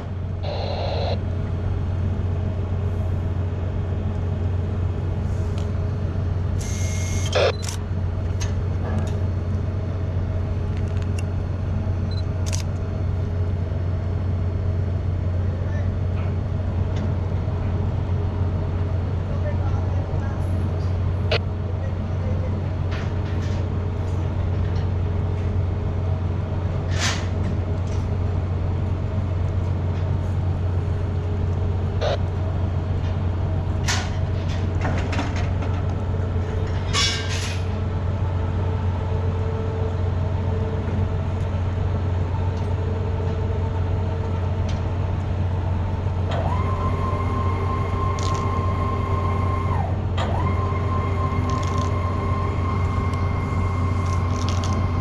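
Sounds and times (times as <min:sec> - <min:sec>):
steady whine: 0:00.0 - 0:14.4, 0:30.7 - 0:34.6, 0:38.3 - 0:55.0
ship machinery humming: 0:00.0 - 0:26.9, 0:27.6 - 0:36.9, 0:37.6 - 0:55.0.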